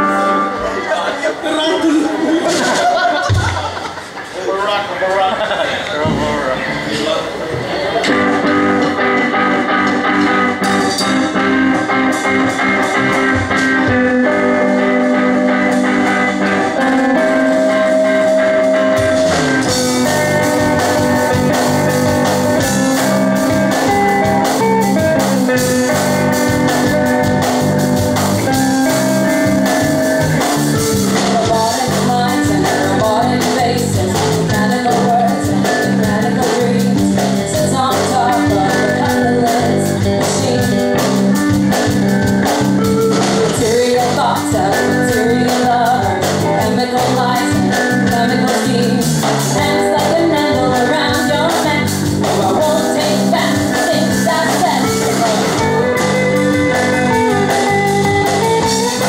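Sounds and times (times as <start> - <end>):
live rock band playing: 0.0 - 59.0
drum beat: 2.5 - 4.0, 6.0 - 59.0
woman singing lead vocal: 30.9 - 41.8, 43.1 - 55.9.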